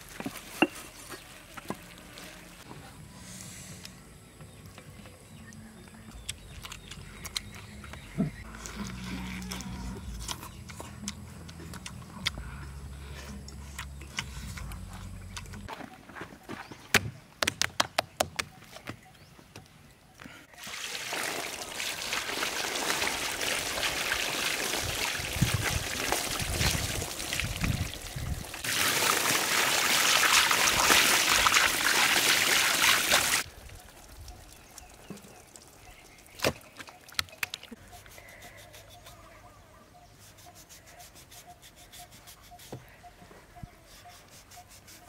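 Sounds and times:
heavy stream of water: 0:20.5 - 0:34.5
running water splashing: 0:20.6 - 0:37.4.

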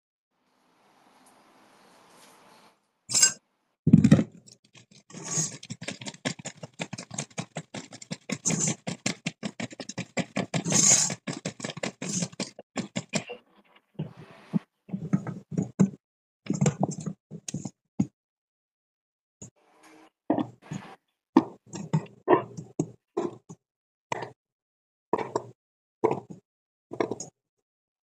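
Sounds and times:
vegetables rattling in container: 0:04.0 - 0:13.2.

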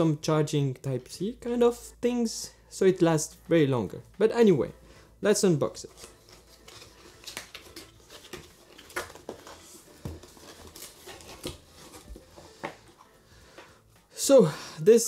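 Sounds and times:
rustling cardboard and paper: 0:05.8 - 0:13.7
cardboard box being opened: 0:06.0 - 0:13.0.

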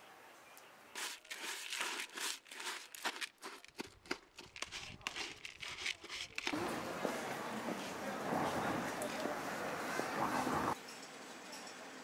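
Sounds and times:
food stirred in metal pot: 0:01.0 - 0:06.6.

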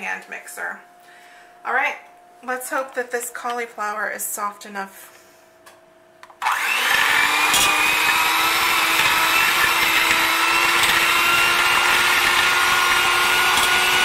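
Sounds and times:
electric hand mixer whining: 0:06.4 - 0:14.0.

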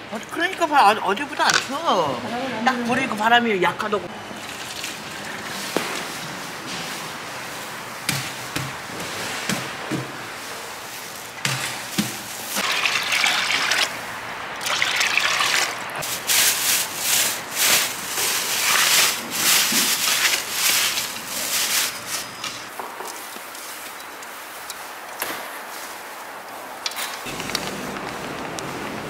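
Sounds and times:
oil pouring into fryer: 0:12.6 - 0:13.9, 0:14.6 - 0:15.8.

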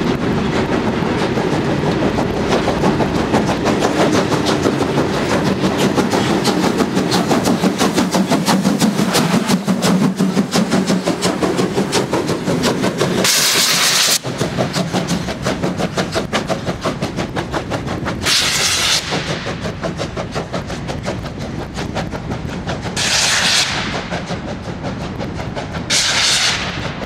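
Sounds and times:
steam locomotive exhaust chuffs: 0:00.0 - 0:27.0
loud steam hiss: 0:13.2 - 0:14.3, 0:18.2 - 0:19.7, 0:25.9 - 0:27.0.

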